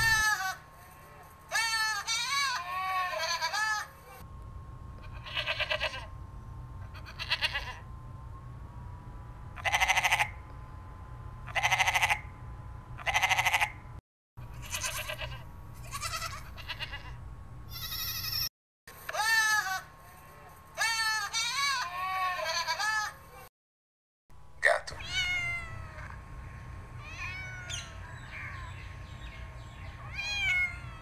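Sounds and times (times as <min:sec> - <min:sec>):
goats bleating: 0:00.0 - 0:00.6, 0:01.5 - 0:03.9, 0:05.0 - 0:06.1, 0:06.9 - 0:07.8, 0:14.5 - 0:18.5, 0:20.8 - 0:23.2.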